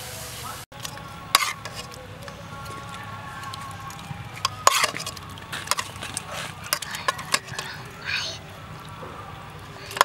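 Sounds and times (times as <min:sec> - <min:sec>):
knife scraping in pot: 0:00.8 - 0:02.0, 0:03.4 - 0:08.0, 0:09.8 - 0:10.0
metal clinks on pot: 0:06.7 - 0:07.7.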